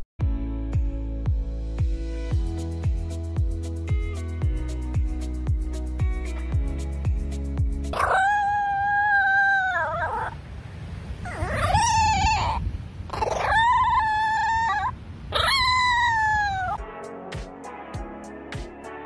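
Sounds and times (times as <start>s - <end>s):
small dog howling: 7.9s - 10.4s, 11.2s - 16.8s.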